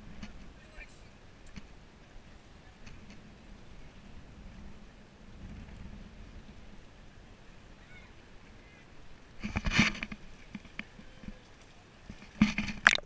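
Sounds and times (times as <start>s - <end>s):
water splashing and sloshing: 9.3s - 13.0s.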